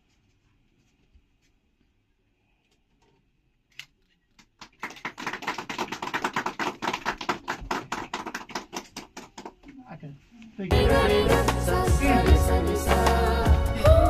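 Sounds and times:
crowd applauding: 4.6s - 9.6s.

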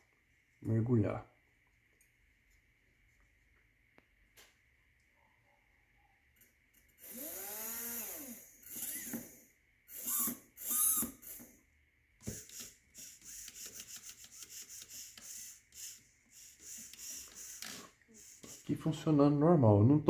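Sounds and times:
electric motor whining: 7.0s - 11.6s
motor pulsing: 7.0s - 11.6s, 12.2s - 18.8s.

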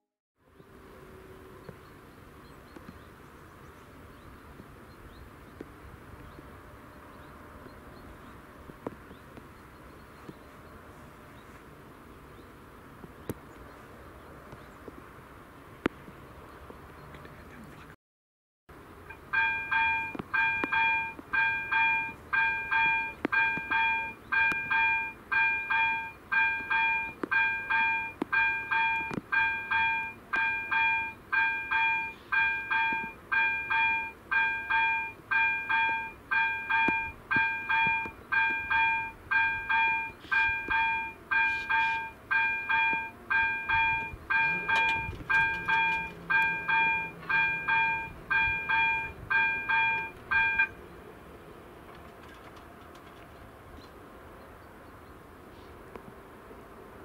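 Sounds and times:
level crossing bell ringing: 19.3s - 50.8s.

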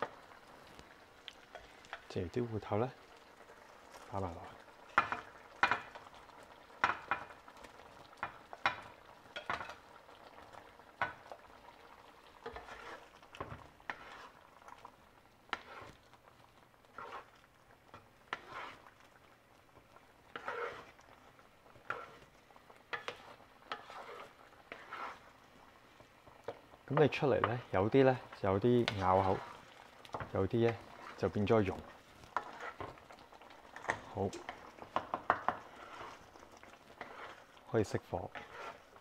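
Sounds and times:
wooden spatula scraping pan: 3.9s - 6.0s, 12.4s - 14.5s, 15.5s - 16.1s, 16.8s - 18.9s, 19.8s - 21.0s, 21.7s - 25.4s, 26.4s - 39.0s.

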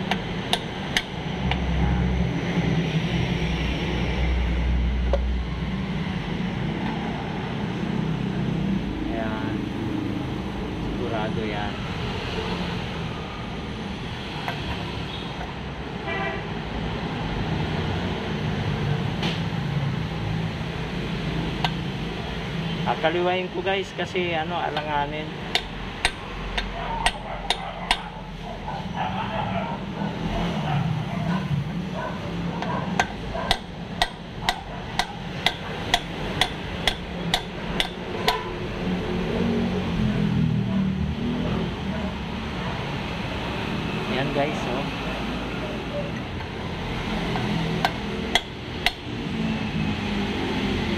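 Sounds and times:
hammer tapping on metal: 0.0s - 1.8s, 21.6s - 21.8s, 24.7s - 28.2s, 32.6s - 38.6s, 46.2s - 49.1s.

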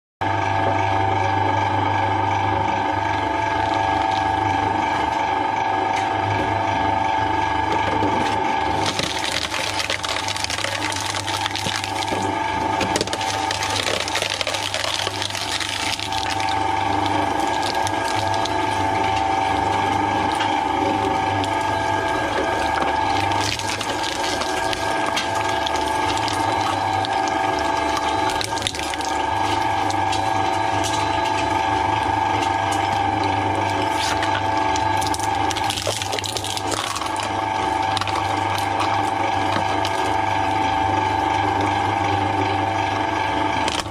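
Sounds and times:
shredder motor whine and hum: 0.2s - 43.9s
cutters crunching plastic and foam: 8.7s - 19.2s, 19.9s - 31.6s, 33.7s - 40.2s.

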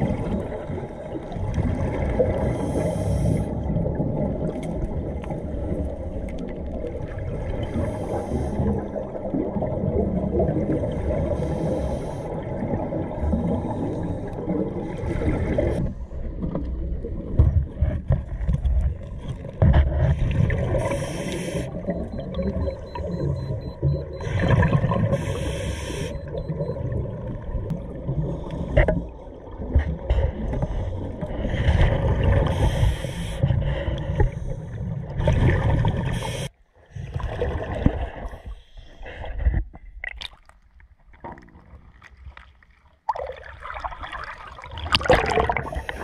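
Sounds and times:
low underwater rumble: 0.0s - 36.2s
exhaled bubbles underwater: 0.0s - 46.0s.

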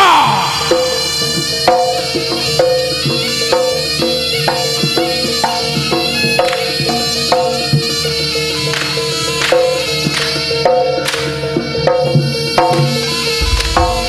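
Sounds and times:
drums: 0.0s - 14.0s.

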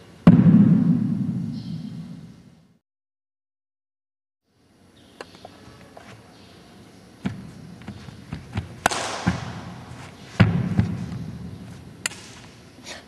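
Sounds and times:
sharp smacks ringing in hall: 8.8s - 11.2s, 12.0s - 12.5s.

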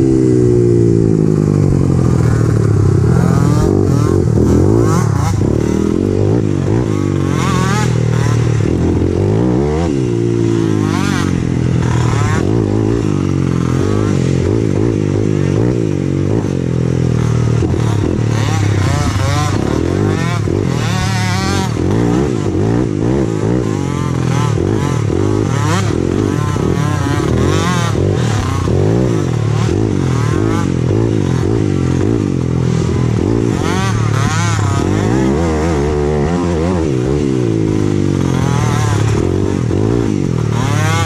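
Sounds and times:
small quad engines revving: 0.0s - 41.0s.

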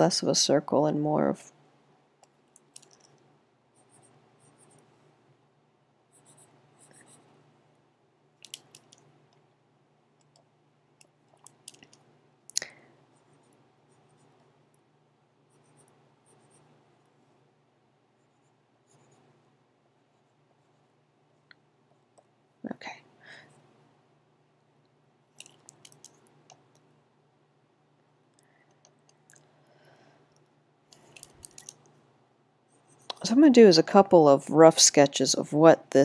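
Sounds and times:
small clicks: 2.2s - 3.2s, 8.4s - 9.4s, 10.2s - 12.7s, 25.4s - 26.8s, 30.3s - 31.9s
stylus scratching on tablet: 3.7s - 5.1s, 6.1s - 7.4s, 13.1s - 14.6s, 15.4s - 17.4s, 18.2s - 21.0s, 32.7s - 33.5s.

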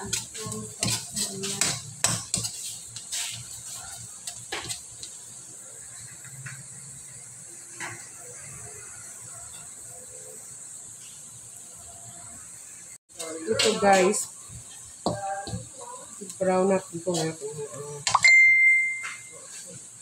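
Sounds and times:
metal spoon scraping a wok: 0.0s - 4.9s
garlic frying in oil: 0.0s - 20.0s.

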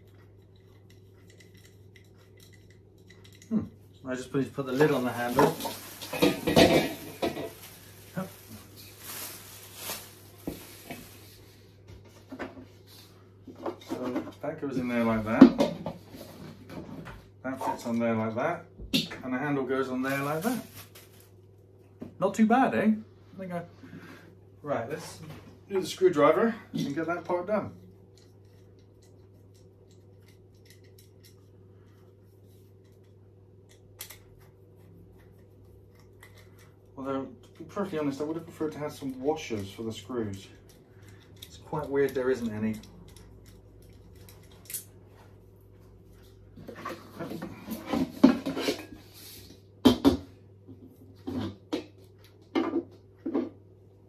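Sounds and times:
low steady hum: 0.0s - 54.0s
grill lid knocks and clatters: 6.1s - 7.5s.

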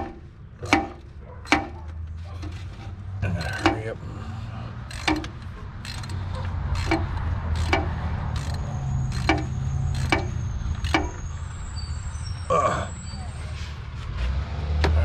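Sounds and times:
ratchet wrench clicking: 4.8s - 11.2s.

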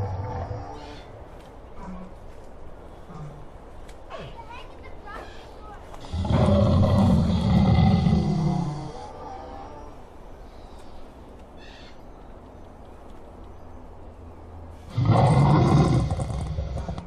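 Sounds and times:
dinosaur roar through loudspeaker: 6.0s - 9.6s, 14.9s - 17.0s.

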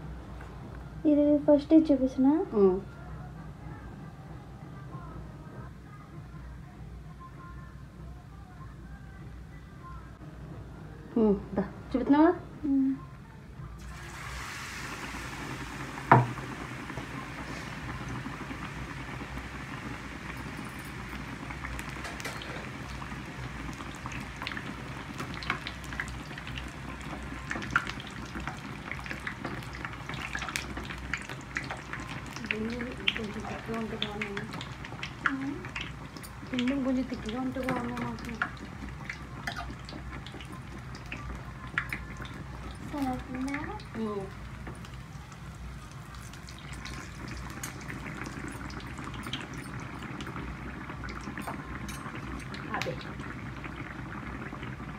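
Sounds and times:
hot oil sizzling and popping: 13.8s - 54.9s.

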